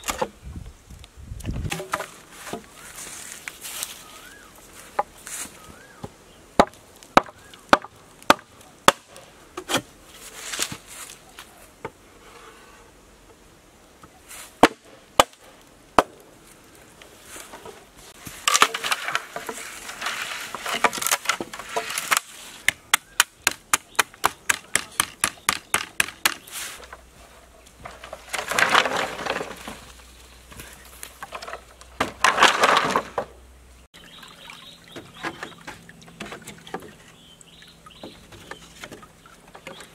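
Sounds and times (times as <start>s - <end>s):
bamboo cracking and splintering: 1.4s - 11.6s, 14.5s - 27.1s, 27.7s - 33.4s
machete chopping bamboo: 6.6s - 9.9s, 14.6s - 16.2s, 20.7s - 26.5s.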